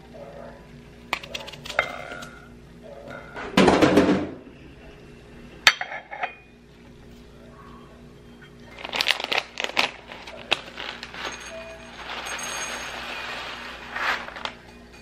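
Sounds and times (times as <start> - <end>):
noisy rustle: 9.9 - 14.6.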